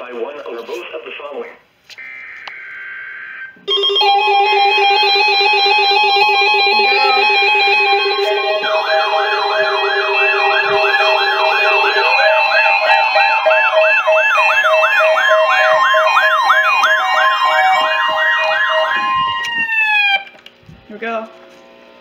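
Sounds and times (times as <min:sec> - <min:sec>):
steady alarm tones: 0:02.0 - 0:20.3
siren-like sweeping tone: 0:02.1 - 0:20.3
repeating beeps: 0:03.7 - 0:19.4.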